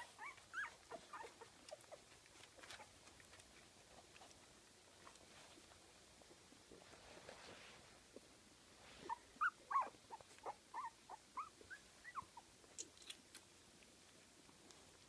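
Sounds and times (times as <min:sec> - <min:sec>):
puppies squeaking and whimpering: 0:00.0 - 0:02.1, 0:09.1 - 0:12.5.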